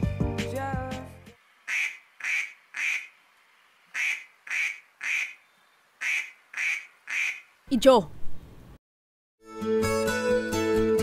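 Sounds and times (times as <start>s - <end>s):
duck quacks: 1.7s - 3.1s, 3.9s - 5.4s, 6.0s - 7.5s.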